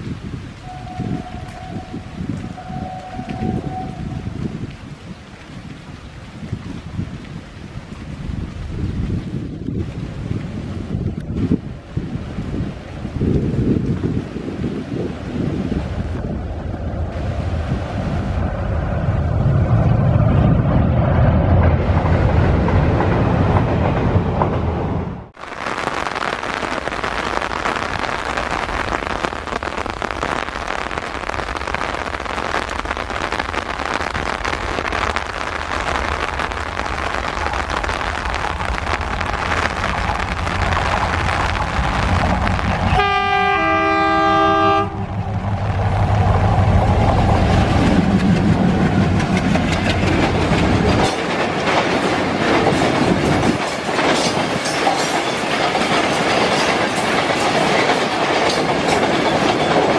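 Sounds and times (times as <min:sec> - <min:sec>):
two-note train horn: 0:00.6 - 0:04.6, 0:42.9 - 0:45.1
diesel locomotive engine rumble: 0:15.2 - 0:25.4, 0:36.7 - 0:59.9
wagon wheels clattering over rail joints: 0:47.6 - 0:59.9.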